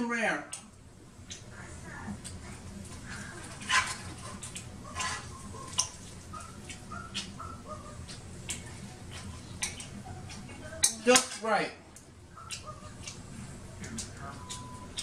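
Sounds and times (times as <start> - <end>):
steady low hum: 0.0 - 15.0
fork and knife clicking on plate: 8.1 - 11.4, 12.4 - 13.2.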